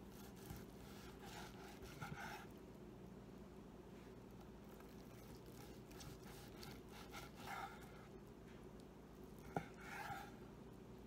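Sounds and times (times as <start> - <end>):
low steady hum: 0.0 - 11.0
knife cutting steak: 0.1 - 2.5, 5.0 - 8.0.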